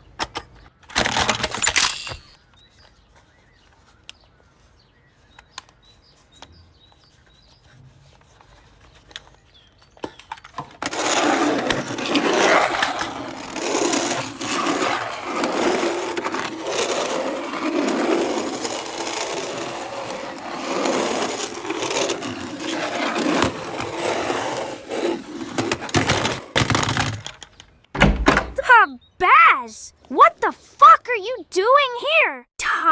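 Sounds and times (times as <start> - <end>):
toy train rattling on wooden track: 10.8 - 27.5.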